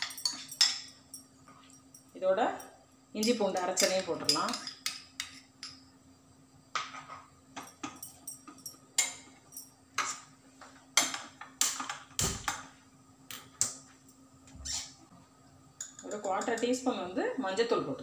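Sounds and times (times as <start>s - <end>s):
steel utensils clinking: 0.0s - 1.2s, 3.2s - 5.8s
faint steady hum: 0.0s - 18.0s.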